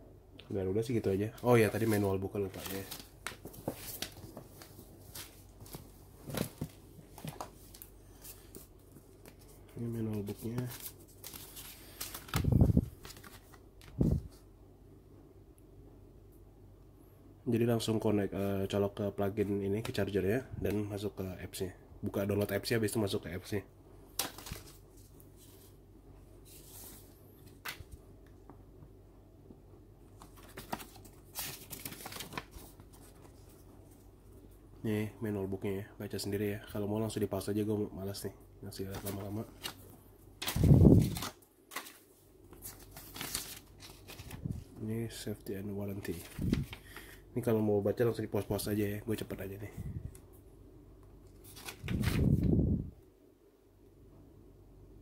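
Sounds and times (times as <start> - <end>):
paper rustling: 1.4 - 14.4, 24.2 - 25.7, 26.4 - 28.0, 30.2 - 34.0, 38.8 - 39.8, 40.4 - 44.8, 46.0 - 47.2, 51.4 - 52.5
packaging rustling: 10.2 - 14.3, 30.2 - 33.5, 40.4 - 44.7
paper pages flicking: 10.4 - 14.3, 24.1 - 24.8, 30.2 - 32.8, 40.4 - 42.0, 42.6 - 44.6, 51.4 - 52.5.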